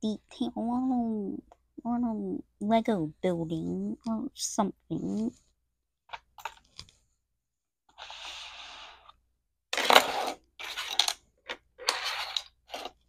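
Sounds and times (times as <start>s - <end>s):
cardboard box scraping on table: 7.9s - 9.2s, 9.8s - 11.1s.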